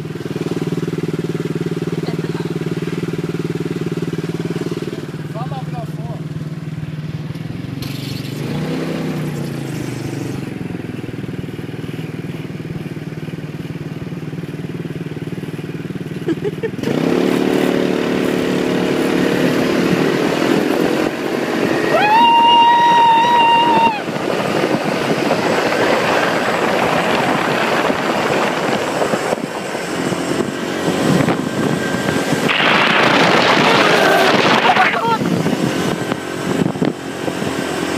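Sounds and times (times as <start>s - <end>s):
go-kart engines running: 0.0s - 37.9s
wind on microphone: 19.5s - 37.9s.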